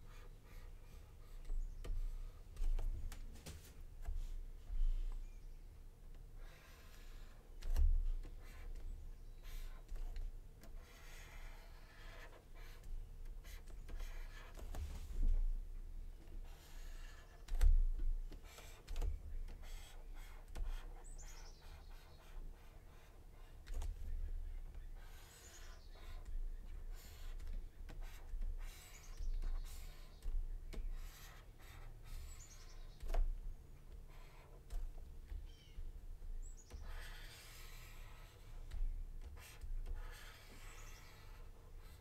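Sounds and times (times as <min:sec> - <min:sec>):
stylus scratching on tablet: 0:10.8 - 0:12.8, 0:13.4 - 0:14.5, 0:16.4 - 0:17.5, 0:19.6 - 0:23.6, 0:25.0 - 0:27.4, 0:28.0 - 0:30.2, 0:30.9 - 0:33.0, 0:36.8 - 0:42.0.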